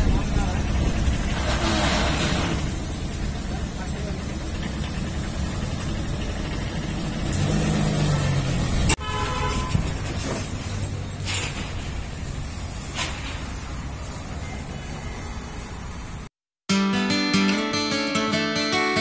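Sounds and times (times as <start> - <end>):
truck engine rumbling: 0.0 - 16.3
horn honk: 8.9 - 10.0.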